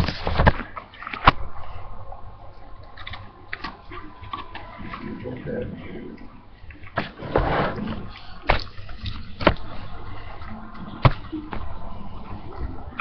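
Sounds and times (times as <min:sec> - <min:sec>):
dog eating wet mouth sounds: 0:02.4 - 0:07.2.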